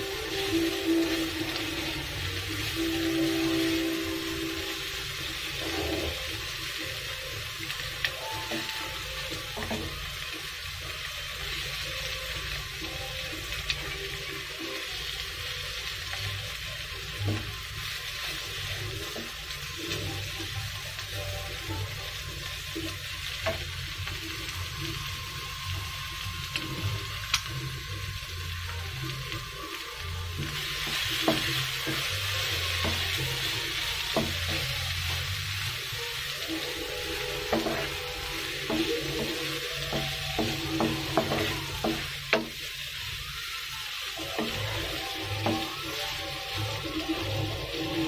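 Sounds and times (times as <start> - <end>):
shrimp sizzling in oil: 0.0 - 48.0
wooden spatula scraping wok: 5.4 - 6.5, 36.6 - 42.7.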